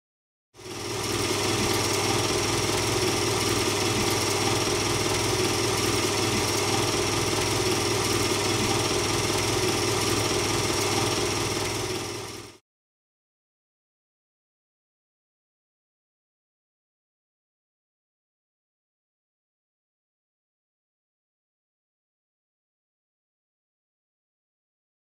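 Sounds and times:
mechanical humming and whirring: 0:00.6 - 0:12.6.

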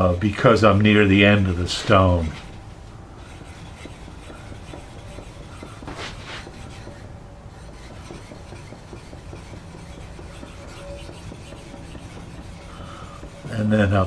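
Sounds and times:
wet stone scraping on steel: 0:03.2 - 0:13.8.

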